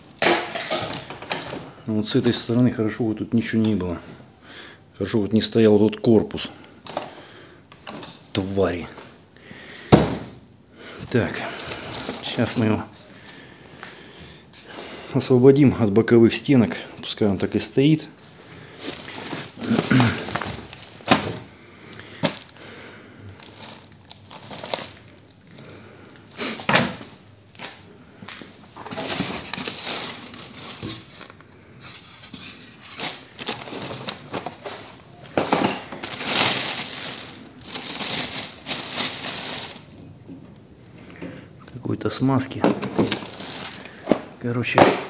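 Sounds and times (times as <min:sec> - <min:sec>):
plastic film rustling: 0:11.1 - 0:13.2, 0:18.2 - 0:22.7, 0:23.3 - 0:40.2, 0:42.0 - 0:44.9.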